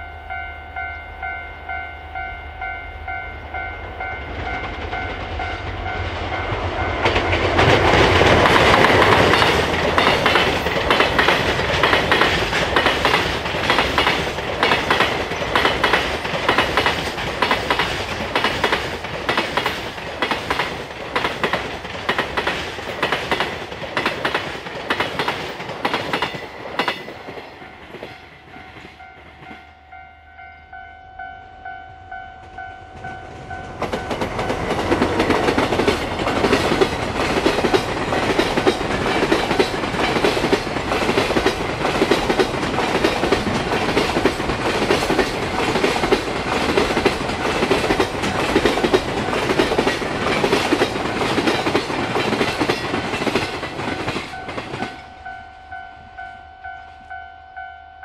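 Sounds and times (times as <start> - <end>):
level-crossing bell ringing: 0.0 - 6.9, 26.3 - 34.6, 54.3 - 58.0
train passing: 0.0 - 58.0
wagons clattering over rail joints: 4.4 - 27.4, 33.0 - 55.0.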